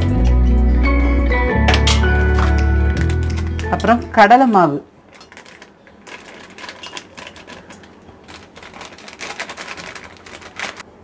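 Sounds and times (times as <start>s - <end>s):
plastic packet crinkling: 2.4s - 4.0s, 5.0s - 10.9s.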